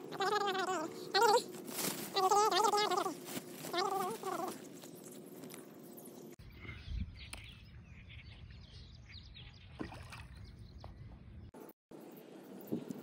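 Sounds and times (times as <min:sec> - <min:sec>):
wind rumbling on microphone: 0:06.4 - 0:11.7.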